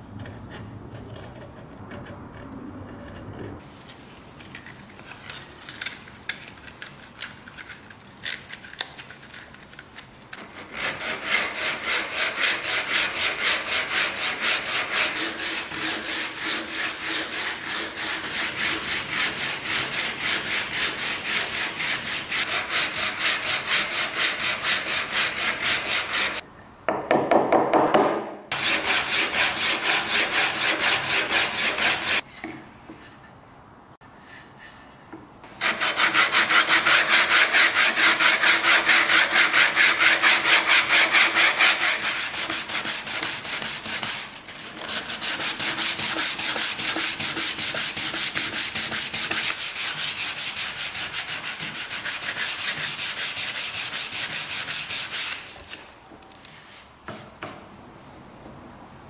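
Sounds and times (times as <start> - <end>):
sandpaper scraping wood: 10.4 - 26.4, 28.5 - 32.3, 35.6 - 55.9.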